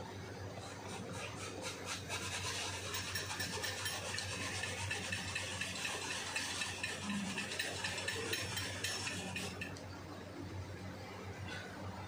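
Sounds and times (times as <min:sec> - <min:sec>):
tool scraping rubber tyre liner: 0:00.6 - 0:07.8.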